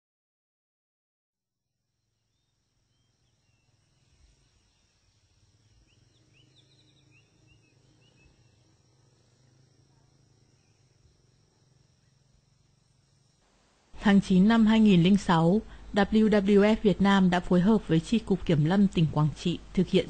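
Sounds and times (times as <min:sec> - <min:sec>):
high insect drone: 0:02.2 - 0:18.0.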